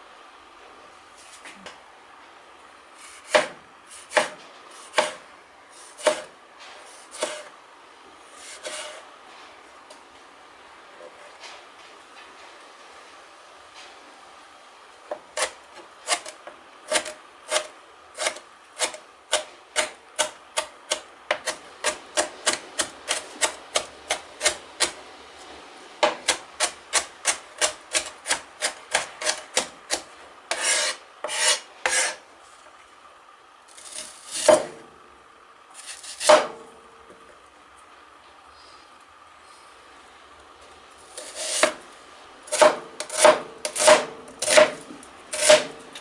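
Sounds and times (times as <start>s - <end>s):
heavy knife cuts: 3.0s - 5.2s, 5.8s - 6.3s, 6.9s - 7.5s, 8.4s - 9.0s, 15.4s - 25.0s, 26.0s - 32.2s, 41.2s - 41.8s, 42.5s - 45.7s
knife scraping board: 3.0s - 7.5s, 8.3s - 9.0s, 15.1s - 25.0s, 26.0s - 32.2s, 33.7s - 34.8s, 35.8s - 36.6s, 41.1s - 41.8s, 42.5s - 46.0s
knife chopping on plastic board: 3.2s - 5.2s, 6.0s - 6.3s, 7.1s - 7.5s, 42.5s - 45.7s.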